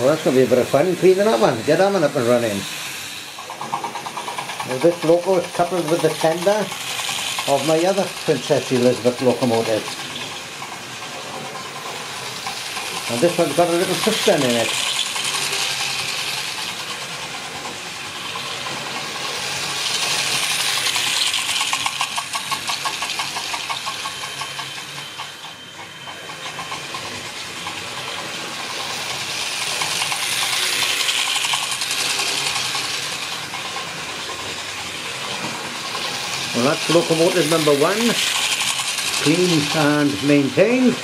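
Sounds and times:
model train motor whirring: 0.0 - 41.0
wheels rattling over rails: 0.0 - 41.0
rapid even ticking: 19.8 - 25.3, 28.6 - 33.9, 36.2 - 40.2.

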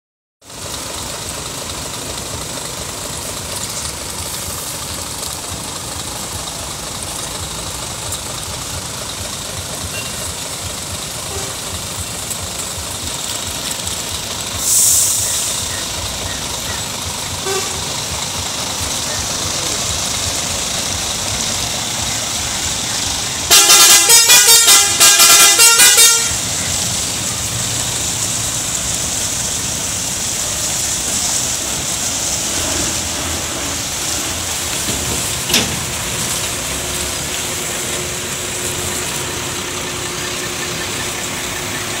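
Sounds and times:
truck engine running: 0.4 - 42.0
truck horn short blasts: 11.2 - 11.8, 17.4 - 18.1, 23.5 - 26.5.

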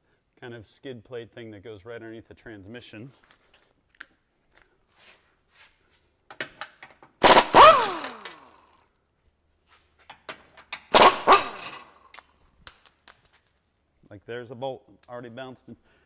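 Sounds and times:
impact wrench bursts: 7.2 - 8.7, 10.7 - 12.1
motor spinning down whine: 7.3 - 8.5.

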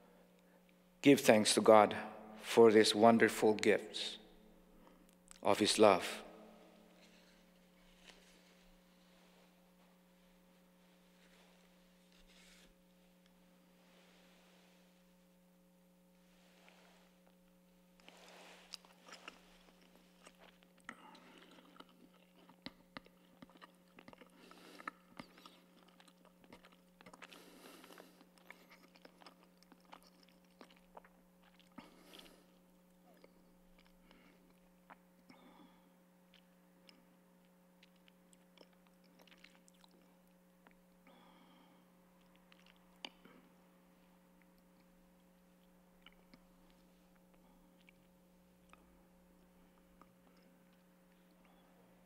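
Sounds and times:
steady low hum: 0.0 - 52.0
person chewing with mouth clicks: 17.2 - 51.7.

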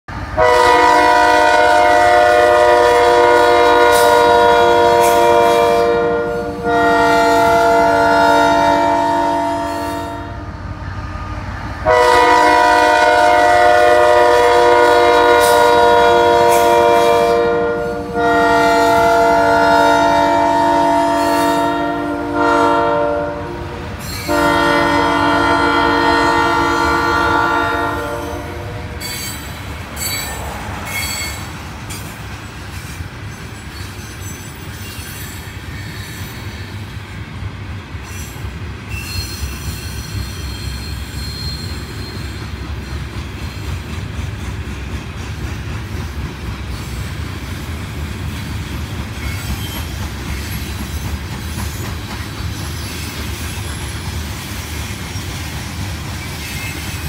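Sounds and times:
freight train rumbling past: 0.1 - 57.0
locomotive air horn blasts: 0.4 - 10.5, 11.8 - 29.2.

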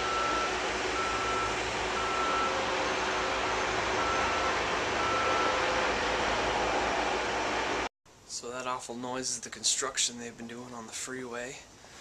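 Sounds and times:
reversing alarm beeping: 0.0 - 6.9
construction machinery rumbling: 0.0 - 7.9.

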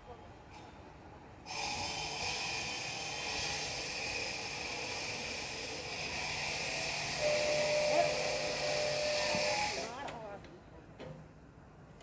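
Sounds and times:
concrete cutter whining: 1.5 - 10.0.

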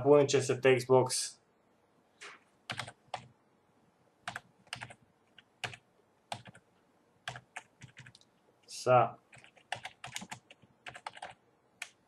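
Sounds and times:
typing on computer keyboard: 2.7 - 3.3, 4.3 - 6.6, 7.3 - 8.2, 9.3 - 12.0.

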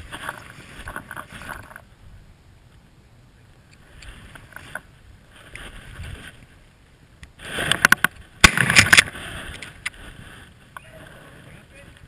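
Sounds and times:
loud sharp crack: 7.8 - 9.2.

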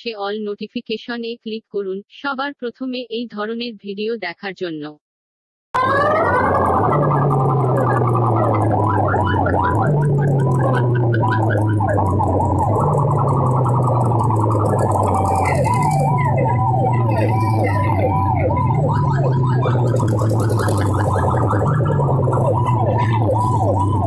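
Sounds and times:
dj music over pa system: 5.8 - 24.0
heavy bass line: 5.8 - 24.0
siren-like warbling effect: 5.8 - 24.0.

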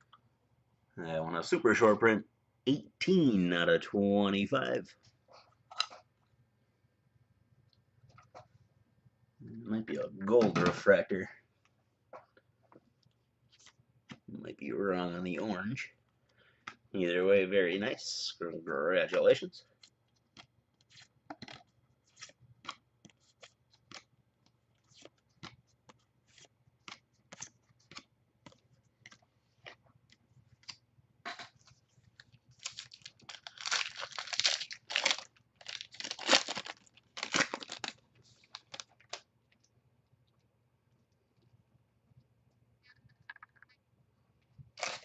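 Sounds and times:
wrapper tearing and crinkling: 32.6 - 39.2, 44.8 - 45.0.

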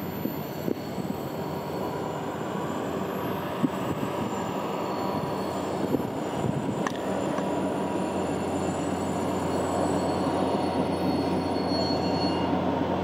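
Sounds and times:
train wheels rumbling on rails: 0.0 - 13.0
sharp clicks of train wheels: 5.8 - 11.4.

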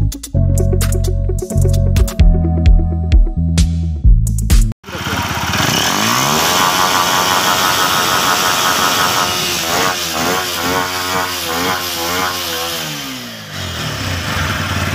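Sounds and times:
motorcycle engine revving: 4.8 - 14.9.

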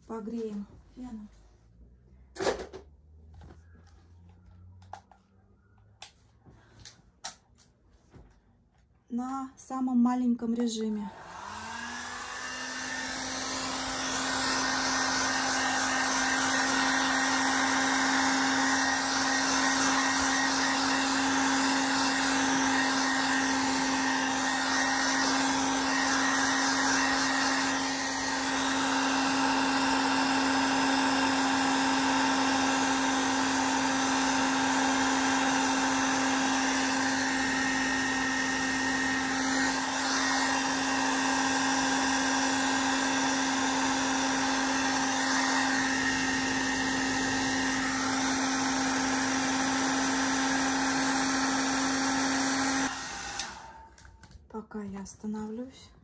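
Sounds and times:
hair dryer blowing: 10.6 - 54.2.

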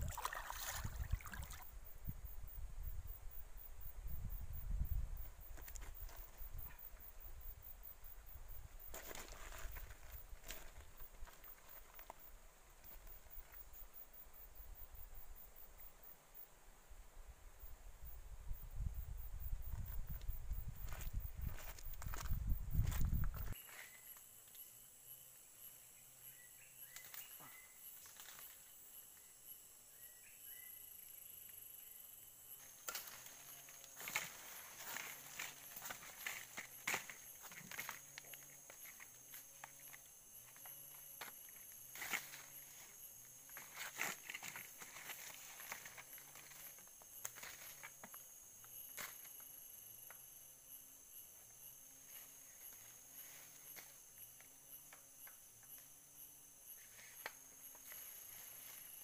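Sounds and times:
high-pitched insect drone: 18.6 - 59.0.

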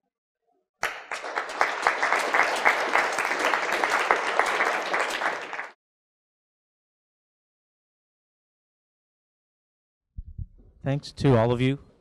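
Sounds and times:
audience applauding: 0.8 - 5.8.

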